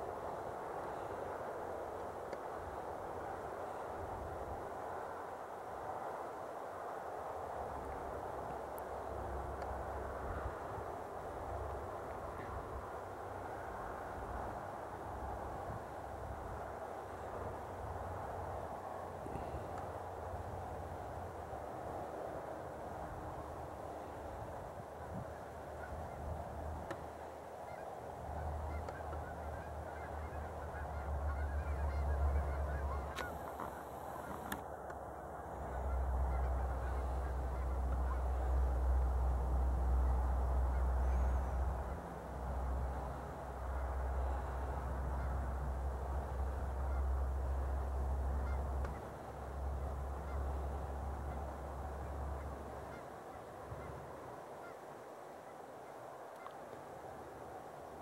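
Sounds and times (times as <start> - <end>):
geese honking: 26.9 - 34.6, 35.5 - 39.0, 39.8 - 54.8.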